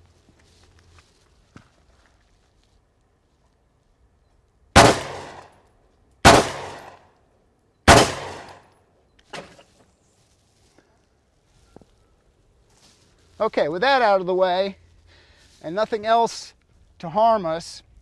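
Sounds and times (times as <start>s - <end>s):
gunshots: 4.8s - 5.5s, 6.2s - 7.0s, 7.9s - 8.6s.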